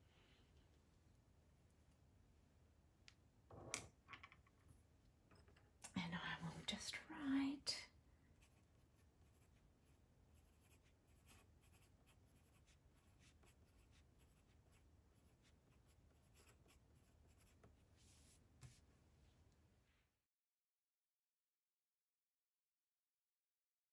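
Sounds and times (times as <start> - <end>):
pencil scratching on paper: 8.4 - 18.9.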